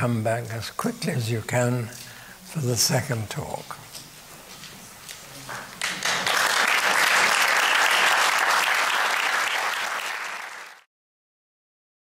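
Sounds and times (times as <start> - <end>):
audience applauding: 5.5 - 10.9.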